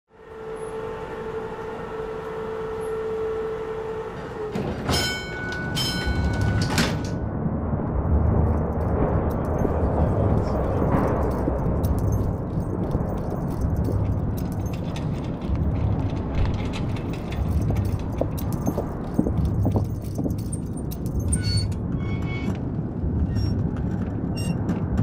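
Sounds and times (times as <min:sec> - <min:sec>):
metallic clanks of sliding doors: 0:04.0 - 0:07.3, 0:10.8 - 0:22.7
low rumble: 0:05.5 - 0:25.0.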